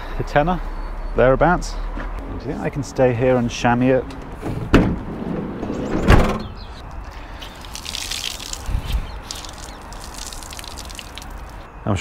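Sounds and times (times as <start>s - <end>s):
water splashing on concrete: 6.8s - 11.7s.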